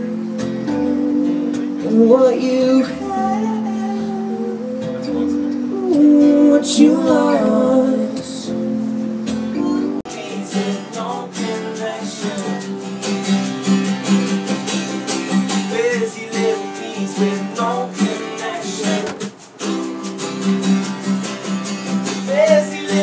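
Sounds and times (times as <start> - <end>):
woman singing: 0.0 - 8.6, 9.5 - 12.7
keyboard chords: 0.0 - 23.0
strummed acoustic guitar: 0.0 - 23.0.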